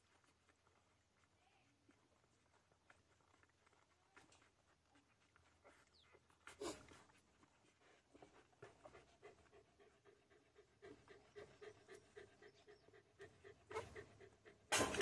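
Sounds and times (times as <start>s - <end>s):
puppies nursing: 0.0s - 15.0s.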